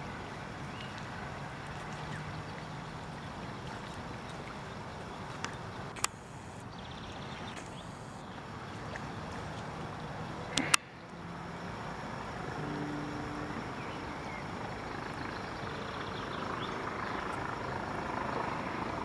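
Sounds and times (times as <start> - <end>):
outdoor background noise: 0.0 - 19.0
sharp clicks: 6.0 - 6.6, 10.5 - 10.8.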